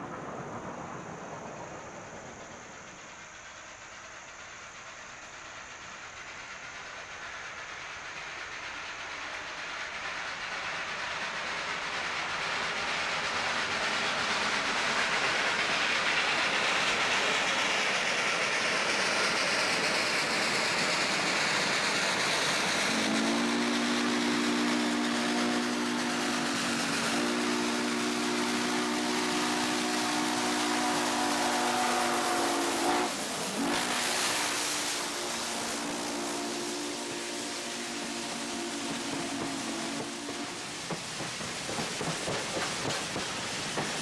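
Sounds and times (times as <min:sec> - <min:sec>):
steam locomotive exhaust rushing: 0:00.0 - 0:44.0
chime steam whistle: 0:21.8 - 0:41.5.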